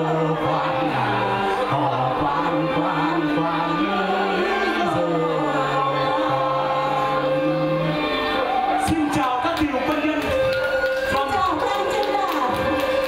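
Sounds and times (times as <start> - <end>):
voices singing long held notes: 0.0 - 11.0
instrumental accompaniment: 0.0 - 13.0.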